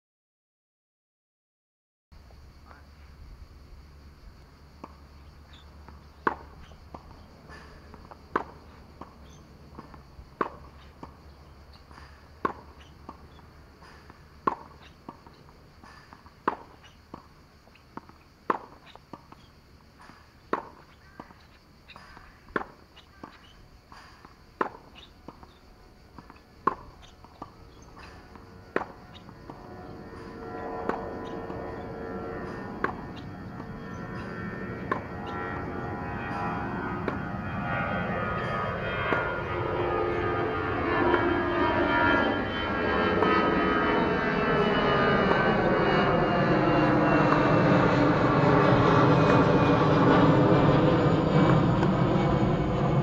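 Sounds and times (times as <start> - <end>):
tennis balls bouncing: 4.5 - 35.6, 37.0 - 37.3
tennis balls struck by racquets: 4.8 - 35.6, 37.0 - 37.3.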